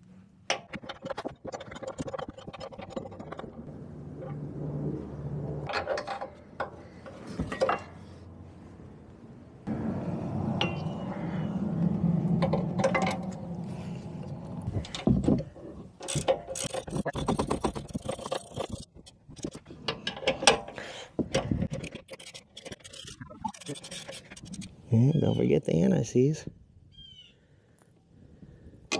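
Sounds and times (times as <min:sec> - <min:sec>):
steady low hum: 0:03.2 - 0:15.7
ratchet clicking: 0:16.0 - 0:19.6.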